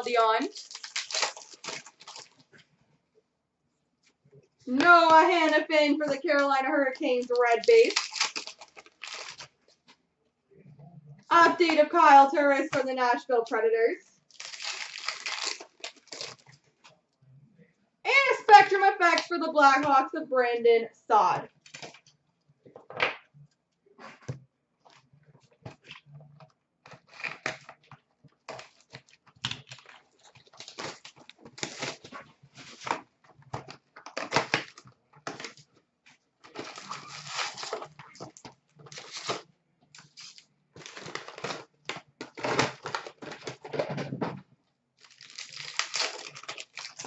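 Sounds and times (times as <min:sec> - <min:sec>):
foil wrappers crinkling and tearing: 0:00.1 - 0:02.5, 0:07.0 - 0:09.6, 0:14.3 - 0:16.6, 0:28.4 - 0:32.9, 0:36.4 - 0:43.8, 0:45.0 - 0:47.0
scratchy rustles of card packs: 0:00.2 - 0:02.6, 0:07.0 - 0:10.0, 0:14.3 - 0:16.9, 0:28.4 - 0:43.8, 0:45.0 - 0:47.0.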